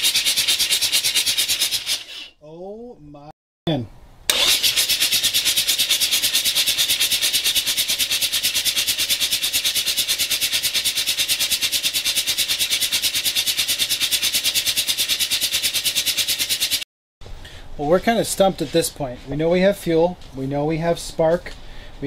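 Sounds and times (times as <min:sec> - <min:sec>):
rotary engine cranking on starter: 0:04.3 - 0:05.2
hiss: 0:04.3 - 0:16.8.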